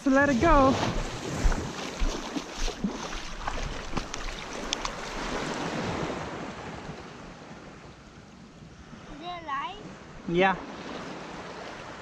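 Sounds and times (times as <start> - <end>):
water sloshing from wading: 0.0 - 7.4
wind on microphone: 0.0 - 7.6
small splashes: 0.1 - 6.1.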